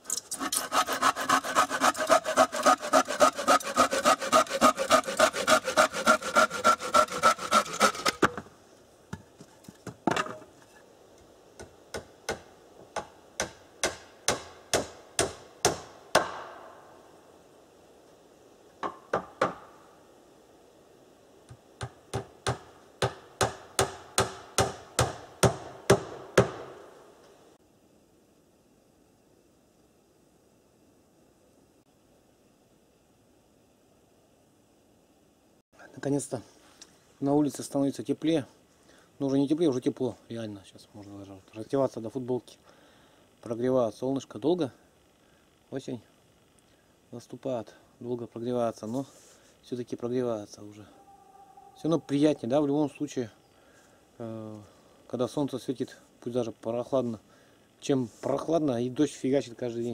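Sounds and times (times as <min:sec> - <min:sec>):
hand saw cutting wood: 0:00.1 - 0:08.4.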